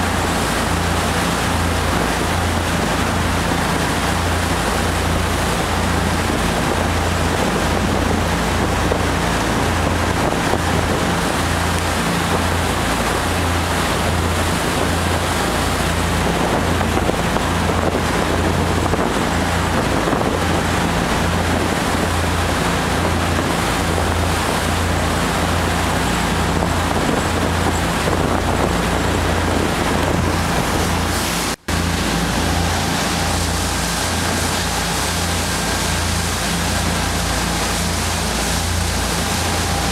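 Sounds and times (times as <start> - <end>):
boat engine drone: 0.0 - 39.9
wind and water rushing: 0.0 - 39.9.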